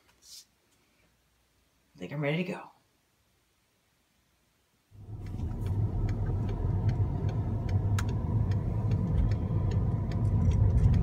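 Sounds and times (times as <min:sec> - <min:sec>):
car engine and road noise: 0:05.0 - 0:11.0.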